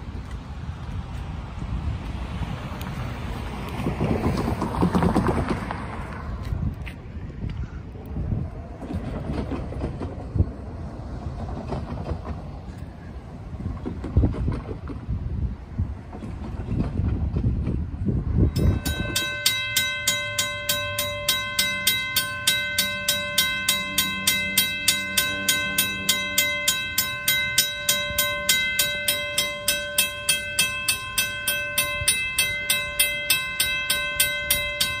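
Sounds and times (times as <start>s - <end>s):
railroad crossing bell ringing: 18.2s - 35.0s.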